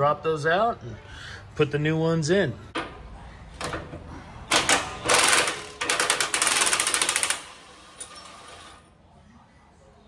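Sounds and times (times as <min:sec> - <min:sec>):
ratchet wrench clicking: 0:05.1 - 0:08.3.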